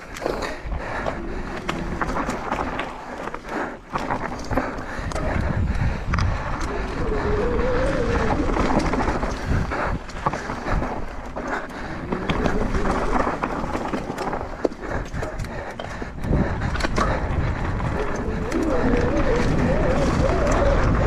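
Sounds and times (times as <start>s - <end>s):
tyres crunching over stones: 0.0s - 5.4s, 6.1s - 21.0s
bike chain and frame rattling: 6.6s - 21.0s.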